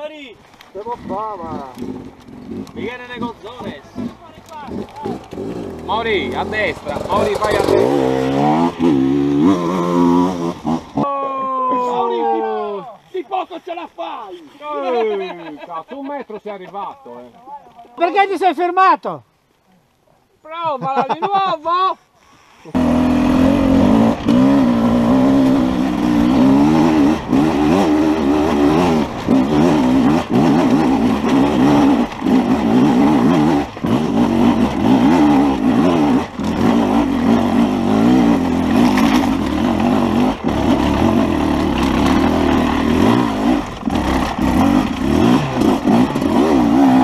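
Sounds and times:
dirt bike engine revving: 0.8s - 11.0s, 22.6s - 47.0s.

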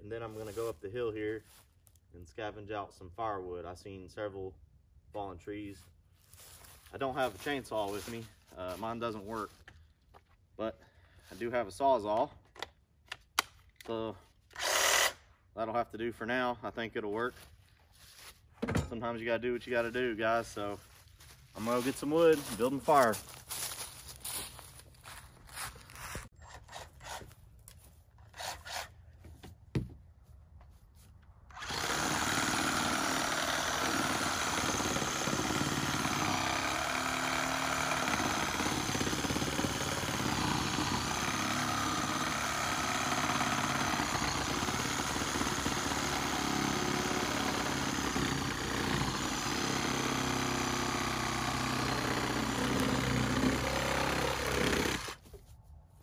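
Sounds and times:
reciprocating saw cutting branches: 28.2s - 29.0s, 31.5s - 55.3s.

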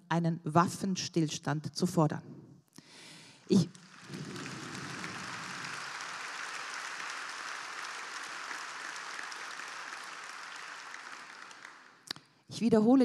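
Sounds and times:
large audience applauding: 3.5s - 12.1s.

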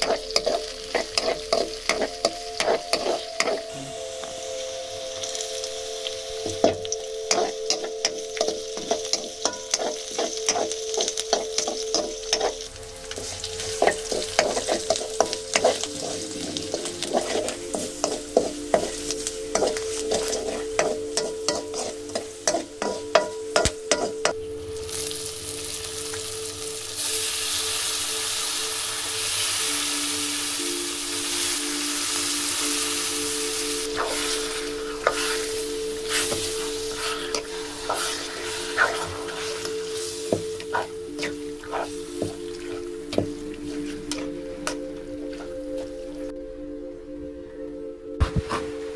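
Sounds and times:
ladle scraping iron wok: 0.0s - 3.7s, 7.3s - 24.3s, 33.9s - 42.8s
loud sizzle of meat in oil: 0.0s - 43.3s.

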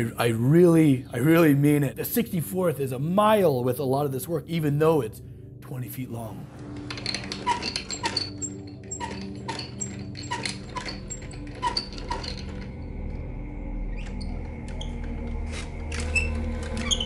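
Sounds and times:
wooden gears clicking and squeaking: 6.6s - 17.0s.

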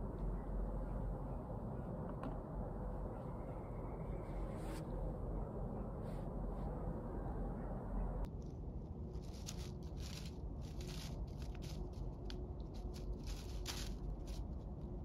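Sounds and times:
squirrel rustling dry leaves: 8.8s - 15.0s.

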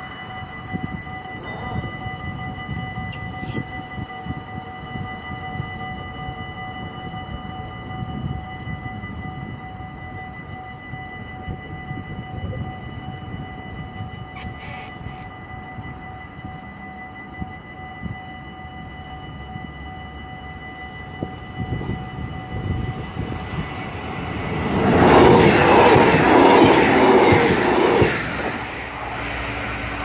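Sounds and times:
level crossing warning bell: 0.0s - 30.0s.

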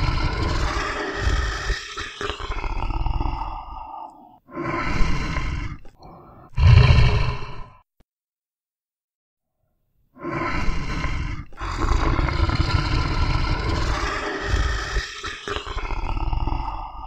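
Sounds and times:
tiger roaring: 6.5s - 7.8s, 10.3s - 15.2s.

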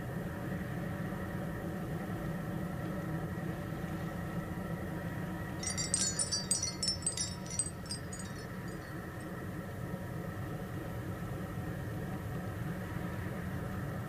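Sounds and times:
high tinkling chimes: 5.6s - 9.3s.

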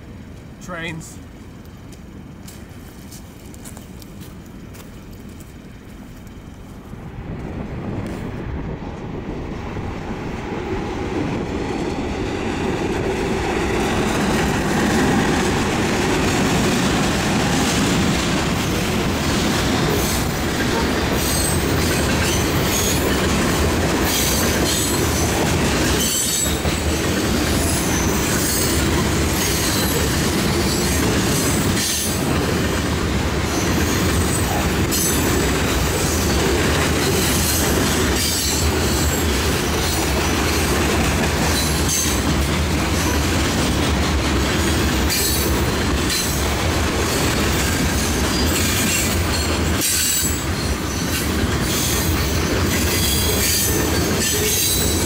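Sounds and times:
freight train rolling past: 0.0s - 55.0s
wheels squealing: 24.1s - 28.8s.

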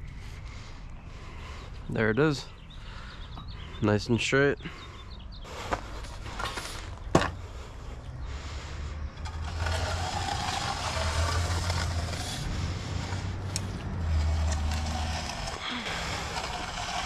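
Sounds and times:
low engine hum: 7.0s - 17.0s
steel edger scraping concrete: 8.4s - 17.0s.

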